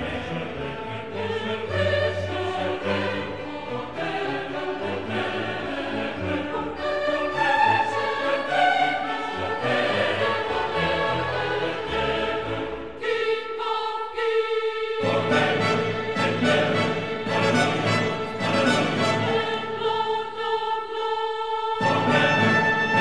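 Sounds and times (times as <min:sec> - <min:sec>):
choir singing: 0:00.0 - 0:23.0
orchestral music: 0:15.0 - 0:20.2, 0:21.8 - 0:23.0.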